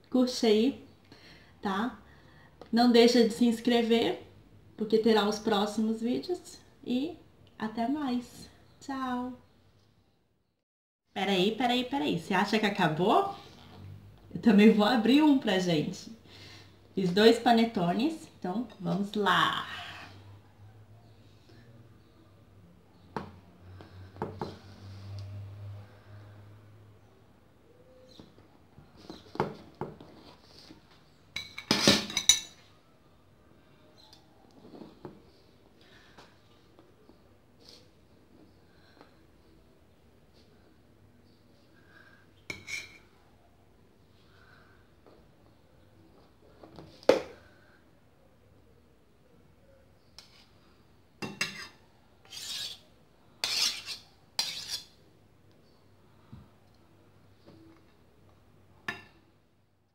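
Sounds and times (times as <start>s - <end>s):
knife and server scraping a plate: 42.5s - 43.1s, 51.3s - 55.0s.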